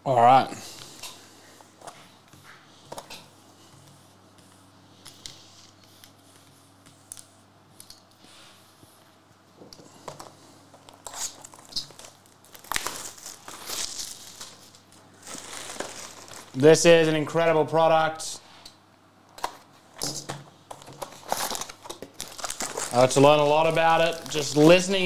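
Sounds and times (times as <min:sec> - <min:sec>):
wrapping crinkling and tearing: 0:10.8 - 0:17.1, 0:20.8 - 0:25.0
paper cards tapping and rustling: 0:19.4 - 0:25.0.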